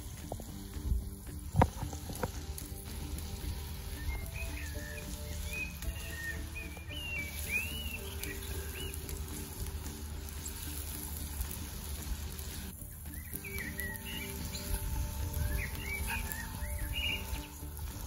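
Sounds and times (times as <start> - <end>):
blackbird singing: 3.5 - 11.3, 12.8 - 18.0.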